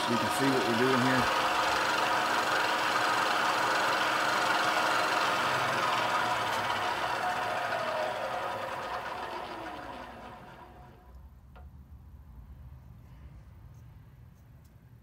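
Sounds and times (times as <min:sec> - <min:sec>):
milling machine spindle whine: 0:00.0 - 0:11.0.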